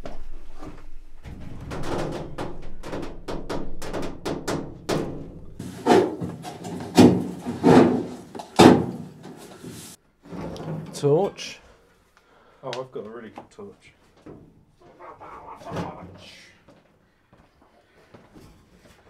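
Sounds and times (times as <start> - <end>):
sheet metal clattering and knocking: 1.2 - 9.6.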